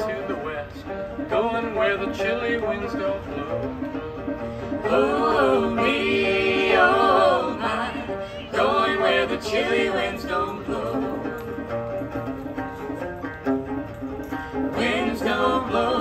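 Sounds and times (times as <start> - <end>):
banjo picking: 0.0 - 16.0
women singing: 4.7 - 11.4, 14.5 - 16.0.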